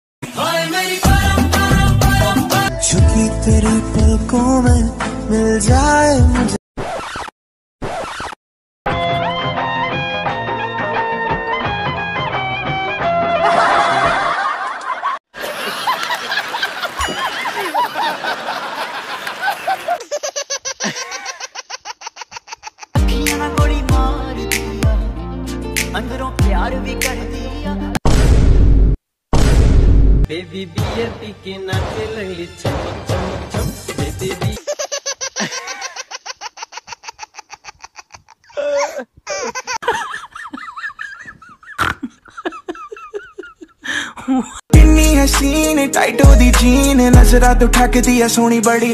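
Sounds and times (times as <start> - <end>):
woman laughing and giggling: 13.5 - 23.0, 34.6 - 44.7.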